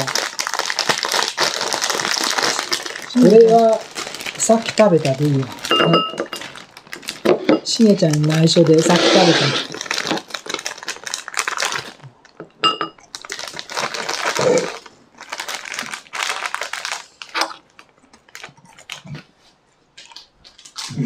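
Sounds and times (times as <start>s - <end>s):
plastic wrapper crinkling: 0.0s - 12.4s, 13.0s - 19.2s, 20.0s - 21.0s.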